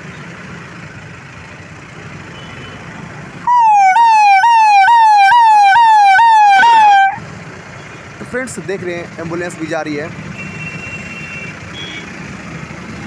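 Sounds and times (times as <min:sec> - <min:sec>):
low traffic rumble: 0:00.0 - 0:13.0
ambulance siren: 0:03.4 - 0:07.2.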